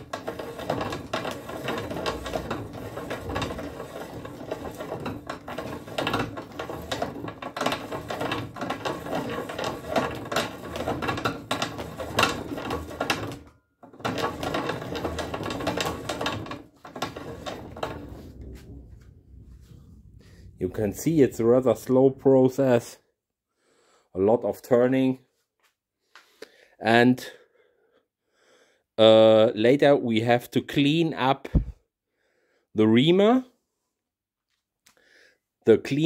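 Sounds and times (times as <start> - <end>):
reamer scraping metal with clicks: 0.0 - 18.8.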